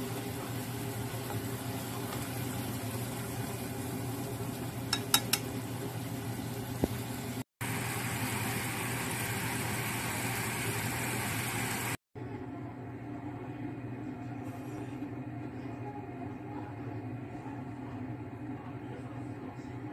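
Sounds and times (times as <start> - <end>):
sauce sizzling in a frying pan: 0.0 - 12.0.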